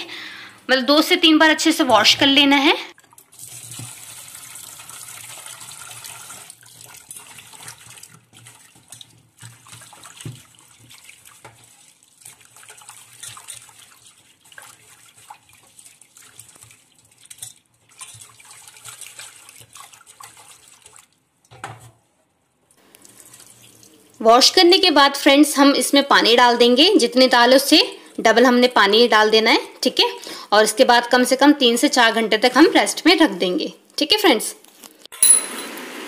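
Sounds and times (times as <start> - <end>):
water swishing and splashing in bowl: 2.9 - 22.0, 23.0 - 24.2.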